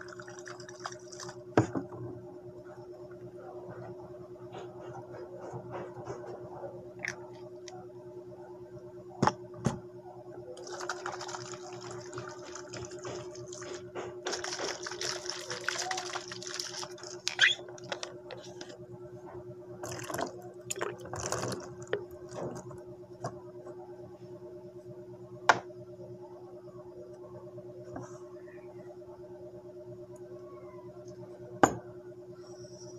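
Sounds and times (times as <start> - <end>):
steady low hum: 0.0 - 32.9
liquid being poured: 10.6 - 13.6, 14.3 - 17.6, 19.8 - 22.7.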